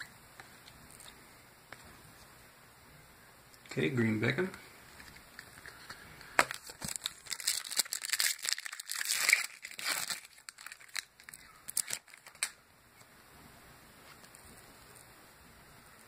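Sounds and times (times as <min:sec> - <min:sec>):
wrapper crinkling as torn open: 0:06.4 - 0:12.6.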